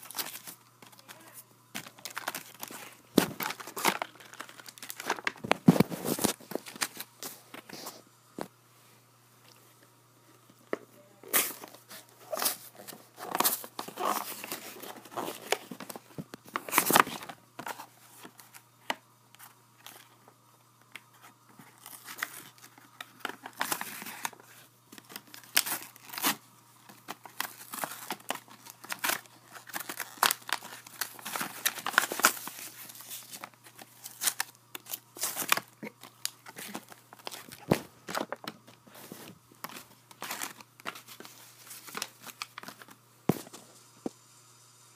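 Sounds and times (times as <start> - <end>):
plastic packaging crinkling and snapping: 0.0 - 7.8, 11.3 - 43.6.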